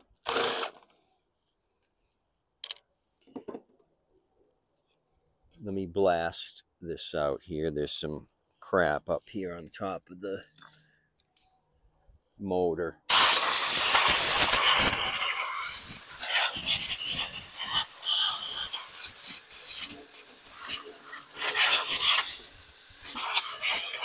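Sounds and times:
compressed air blow gun hissing: 13.1s - 24.0s.

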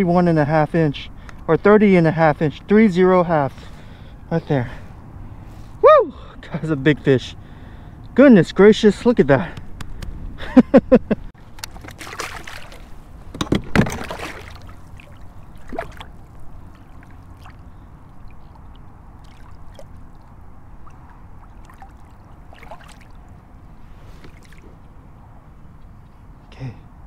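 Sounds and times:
water lapping against kayak hull: 11.4s - 23.4s, 24.0s - 24.8s
fish splashing into water: 11.6s - 13.0s, 13.8s - 23.3s.

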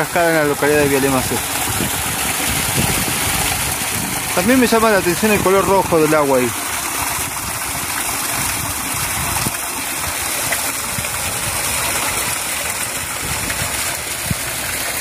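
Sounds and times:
water running over rocks: 0.0s - 15.0s.

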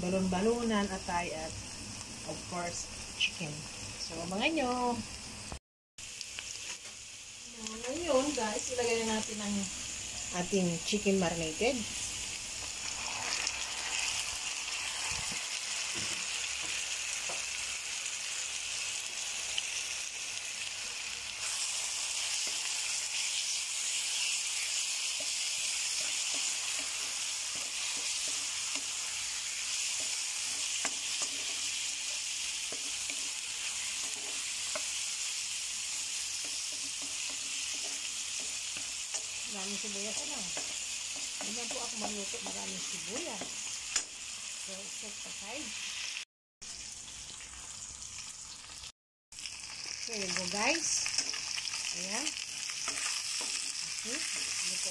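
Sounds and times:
chicken sizzling in hot oil: 0.0s - 54.9s
spatula stirring in pan: 21.2s - 44.1s, 52.4s - 54.9s.

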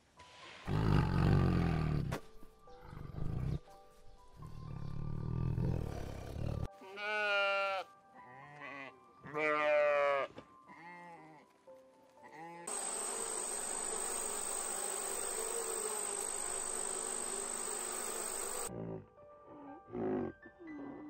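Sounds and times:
sheep bleating: 6.8s - 11.4s
bee buzzing: 12.7s - 18.7s.

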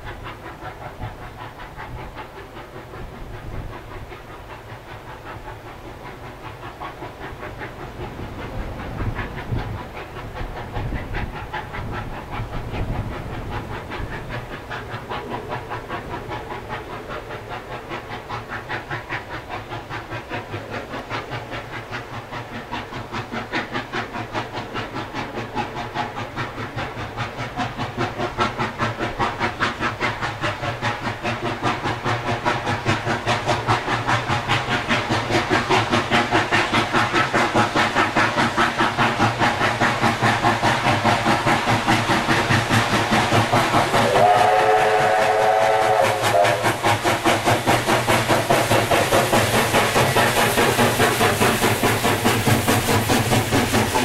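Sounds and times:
steam locomotive exhaust chuffs: 0.0s - 54.0s
steam whistle chord: 44.0s - 46.6s.

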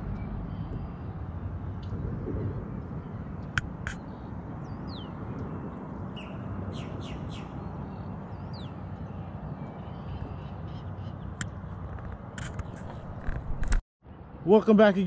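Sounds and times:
steady low rumble: 0.0s - 7.3s
birds calling: 2.8s - 13.3s.

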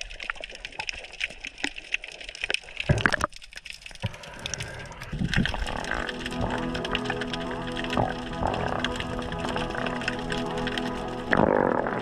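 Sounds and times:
underwater crackle of clicks: 0.0s - 12.0s
water rushing: 3.9s - 12.0s.

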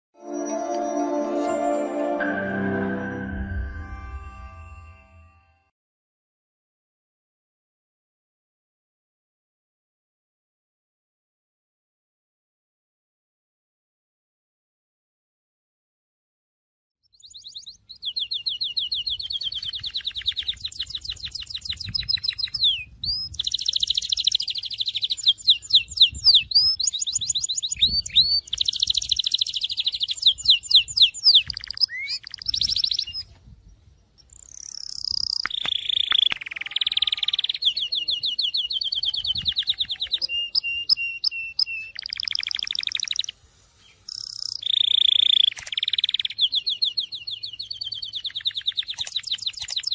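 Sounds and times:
canary singing trills: 17.1s - 49.9s.

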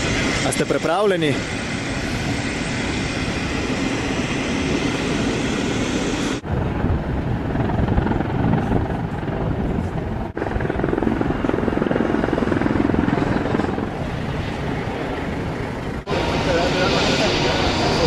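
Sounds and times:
jet airliner rumble: 0.0s - 18.0s
outdoor noise: 0.0s - 18.0s.

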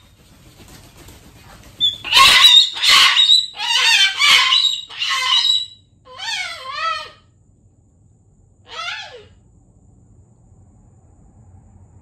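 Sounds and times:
cockatoo screaming: 1.8s - 7.3s, 8.7s - 9.4s.

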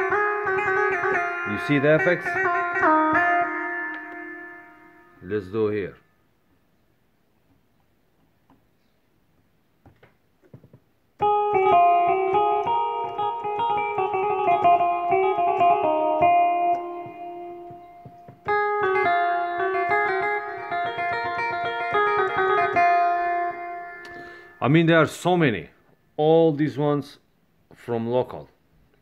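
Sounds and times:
keyboard playing plucked melody: 0.0s - 5.2s, 11.2s - 24.8s.

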